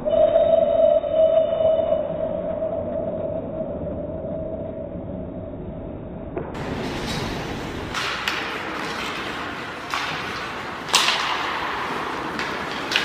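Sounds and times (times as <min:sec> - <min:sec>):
hockey sticks and puck cracking: 0:06.6 - 0:13.0
players hitting: 0:06.6 - 0:13.0
skates scraping on ice: 0:06.6 - 0:13.0.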